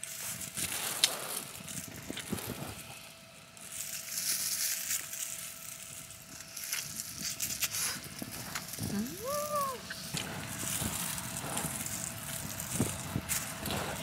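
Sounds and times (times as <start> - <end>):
plastic glove crinkling: 0.0 - 13.7
biting and chewing meat: 9.9 - 14.0.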